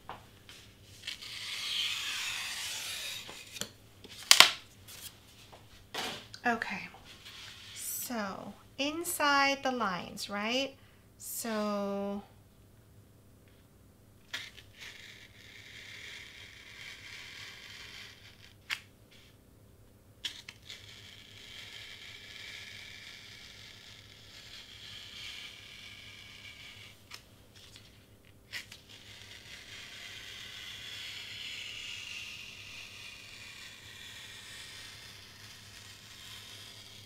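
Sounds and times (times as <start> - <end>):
knife cutting foam board: 0.6 - 5.1, 14.3 - 18.9, 20.2 - 37.0.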